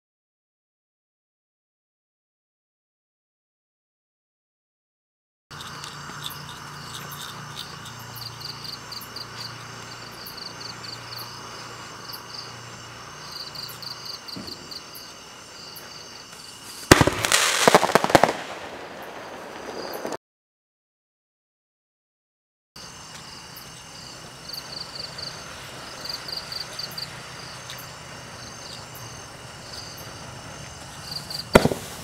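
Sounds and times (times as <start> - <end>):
crickets chirping: 5.5 - 20.2, 22.8 - 32.0
firework crackling pops: 16.3 - 20.2, 28.8 - 32.0
firework burst: 16.6 - 20.2, 29.3 - 32.0.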